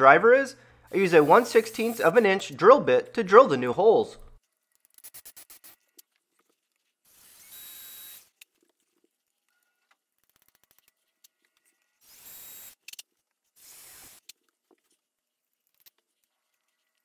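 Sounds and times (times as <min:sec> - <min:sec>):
electric drill drilling into wood: 0:07.1 - 0:08.4, 0:12.0 - 0:12.8, 0:13.6 - 0:14.3.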